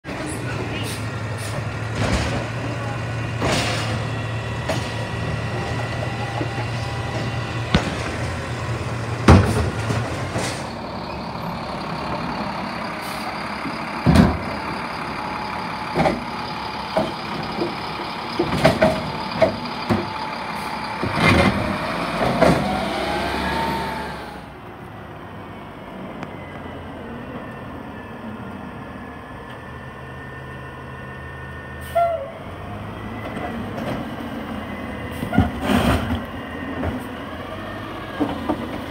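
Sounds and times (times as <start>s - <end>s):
garbage truck engine running: 0.1s - 24.6s.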